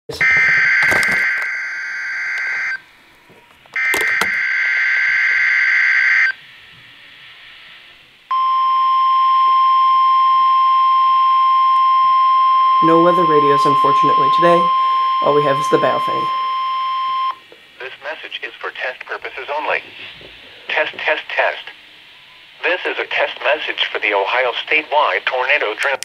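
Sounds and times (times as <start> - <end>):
steady alarm tone: 0.1 - 2.9, 3.8 - 6.4, 8.3 - 17.4
screechy data bursts from radio: 0.2 - 2.8
faint radio hiss: 6.4 - 8.3, 17.4 - 26.0.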